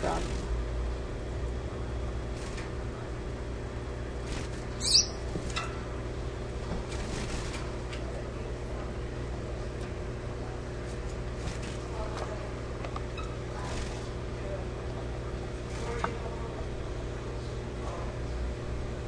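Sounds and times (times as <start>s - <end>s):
steady low hum: 0.0s - 19.0s
high bird chirp: 4.8s - 5.2s
finches calling: 4.8s - 5.3s.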